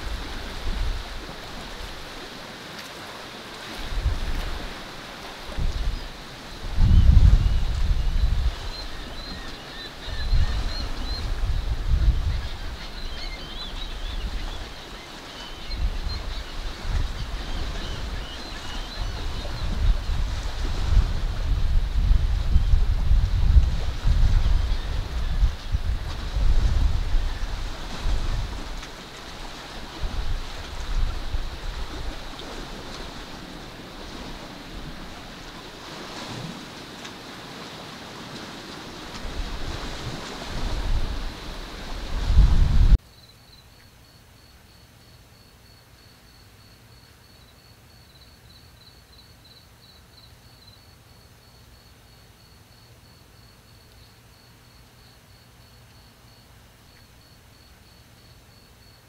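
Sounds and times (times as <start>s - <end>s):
wind buffeting microphone: 3.8s - 4.8s, 5.4s - 14.8s, 15.5s - 36.7s, 38.5s - 43.0s.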